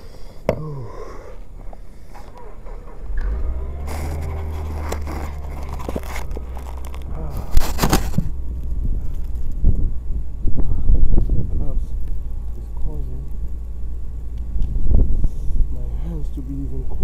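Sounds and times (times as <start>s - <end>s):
low rumble: 0.6s - 17.0s
camera handling scraping: 3.9s - 8.3s.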